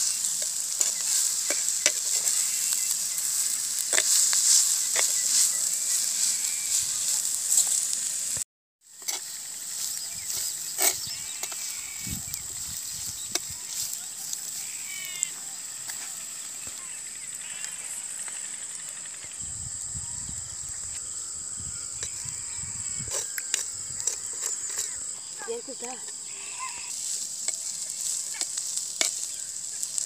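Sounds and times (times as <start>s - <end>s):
ladle scraping a clay pot: 10.2s - 12.0s, 23.0s - 25.1s.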